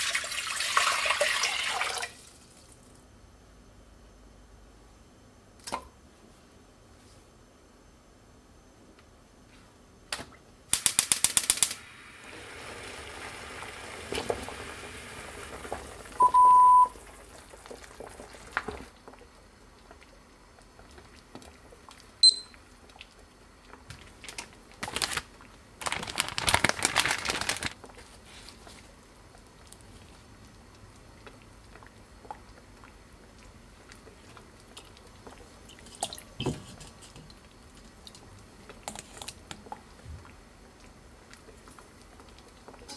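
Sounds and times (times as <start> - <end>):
kitchen timer beep: 16.2 - 16.9, 22.2 - 22.6.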